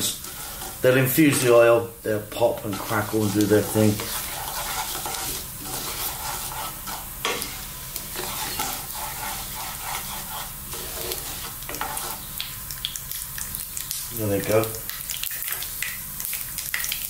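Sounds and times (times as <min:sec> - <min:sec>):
wooden spatula scraping pan: 0:00.0 - 0:01.6, 0:02.4 - 0:12.3
seeds sizzling in hot oil: 0:00.0 - 0:17.0.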